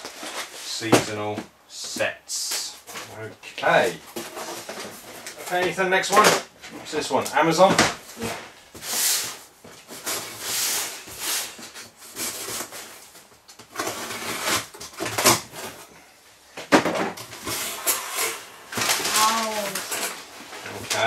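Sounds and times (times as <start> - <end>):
cardboard rustling and scraping: 0.0 - 1.1, 2.8 - 15.9, 16.8 - 21.0
packing tape pulled off: 17.3 - 20.2.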